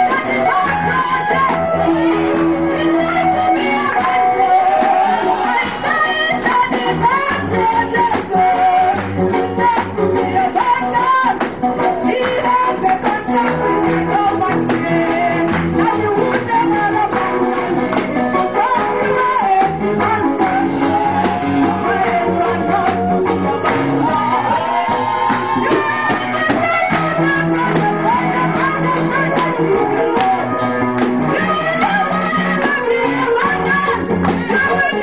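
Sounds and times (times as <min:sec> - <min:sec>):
bass: 0:00.0 - 0:35.0
guitar: 0:00.0 - 0:35.0
steady drum beat: 0:00.0 - 0:35.0
voices singing: 0:00.0 - 0:35.0.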